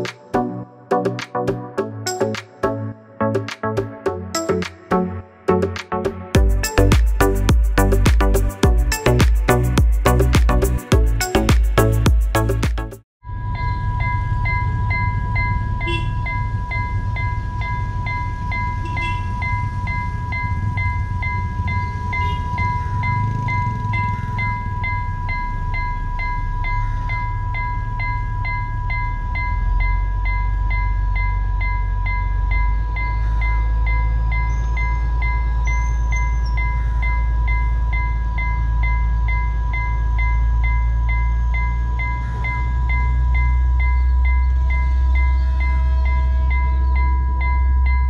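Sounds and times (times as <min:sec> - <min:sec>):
alarm chime striking: 0:13.2 - 0:48.0
level crossing alarm tone: 0:13.2 - 0:48.0.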